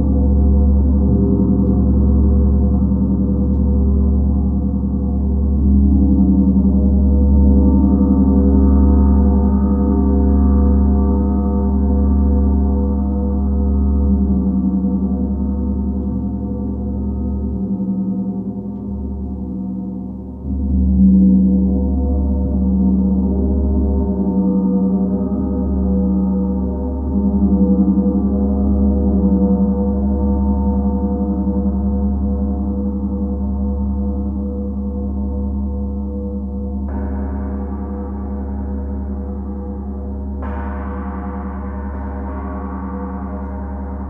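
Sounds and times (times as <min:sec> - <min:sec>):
gong drone: 0:34.8 - 0:44.0.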